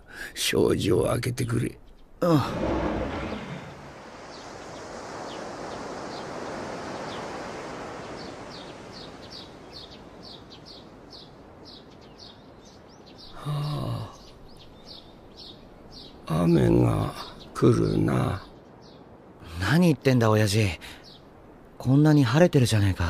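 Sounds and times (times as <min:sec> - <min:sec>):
small birds chirping: 0:00.0 - 0:23.0
soft rushing outdoor ambience: 0:00.0 - 0:23.0
low human vocal sound: 0:02.2 - 0:03.8, 0:13.4 - 0:14.2.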